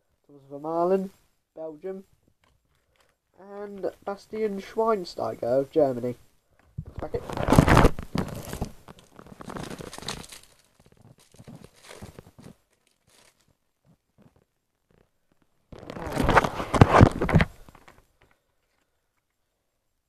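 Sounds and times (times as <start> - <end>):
cards being handled: 6.8 - 13.6
wrapper tearing and crinkling: 6.9 - 13.6, 15.7 - 18.0.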